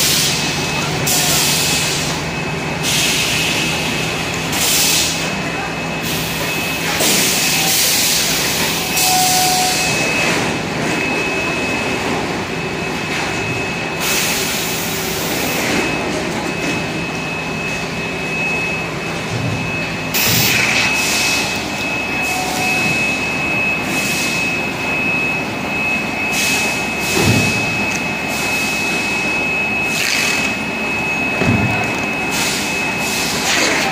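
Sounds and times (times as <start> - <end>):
high machine whine: 0.0 - 33.9
machinery mechanical din: 19.2 - 21.5.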